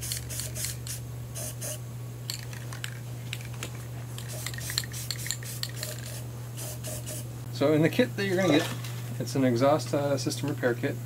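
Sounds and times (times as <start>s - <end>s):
spray can ball rattling: 2.3s - 7.2s.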